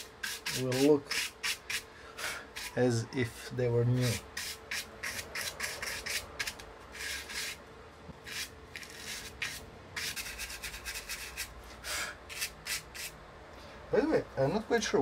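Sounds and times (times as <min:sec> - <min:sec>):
paintbrush scratchy strokes: 0:08.3 - 0:11.5.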